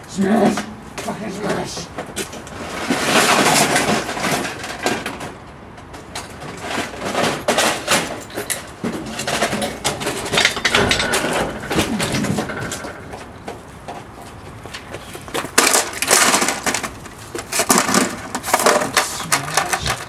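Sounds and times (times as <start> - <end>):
plastic electronics being smashed: 15.5 - 20.0.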